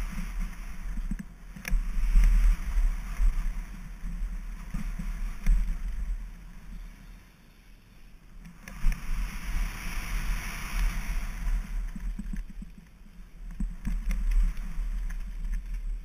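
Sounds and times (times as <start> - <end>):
wind rumble on microphone: 0.0 - 7.6, 8.2 - 16.0
bike tyres hissing over gravel: 0.0 - 7.9, 8.6 - 12.3
bike clicks and rattles: 11.8 - 16.0.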